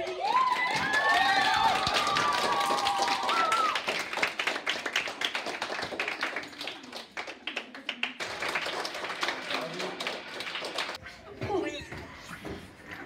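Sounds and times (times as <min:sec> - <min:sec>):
children clapping hands: 0:00.0 - 0:11.0.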